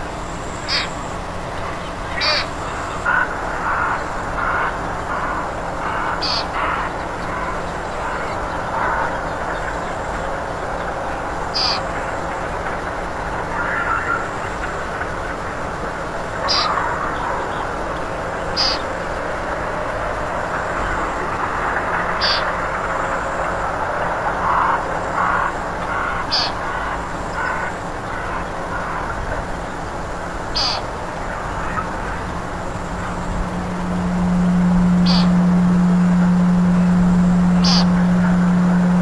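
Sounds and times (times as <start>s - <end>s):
steady hiss: 0.0s - 39.0s
frog croaking distress cries: 0.6s - 1.1s, 2.1s - 7.5s, 11.6s - 11.8s, 16.4s - 16.8s, 18.6s - 18.8s, 22.2s - 22.5s, 26.2s - 26.7s, 30.5s - 39.0s.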